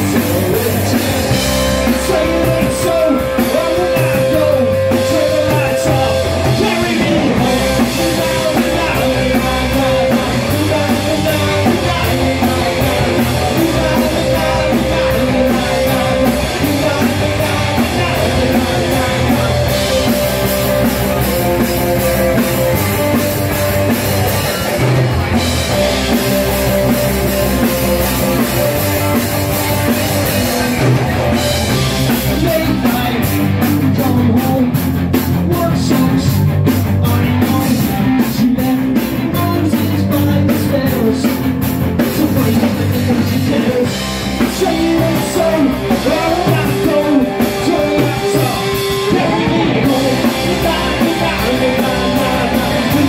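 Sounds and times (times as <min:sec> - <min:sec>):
person singing: 0:00.0 - 0:25.0, 0:25.7 - 0:53.0
live rock band playing: 0:00.0 - 0:53.0.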